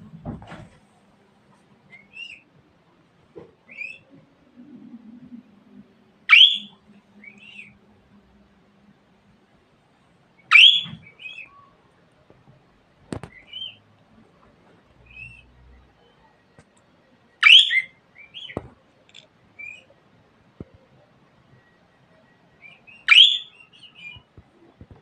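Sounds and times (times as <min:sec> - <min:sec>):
budgerigars chirping: 0:06.3 - 0:07.7, 0:10.5 - 0:11.5, 0:17.4 - 0:18.6, 0:22.9 - 0:24.2.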